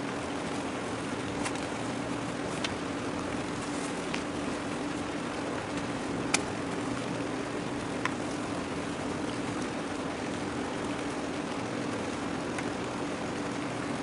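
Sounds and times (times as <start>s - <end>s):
ship machinery drone: 0.0s - 14.0s
sharp ticks: 5.6s - 6.6s.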